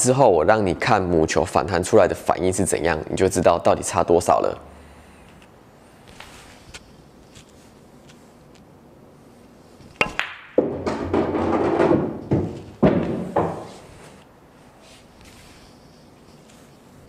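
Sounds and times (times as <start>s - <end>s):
ball dropping into pocket: 9.8s - 13.8s
ball rolling inside table: 9.8s - 14.2s
pool balls clicking: 9.8s - 14.2s.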